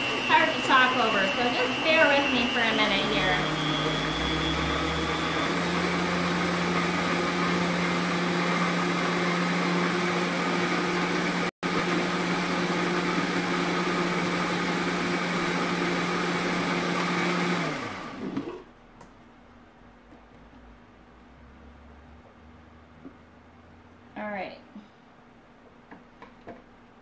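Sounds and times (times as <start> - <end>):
blender motor running: 0.0 - 18.7.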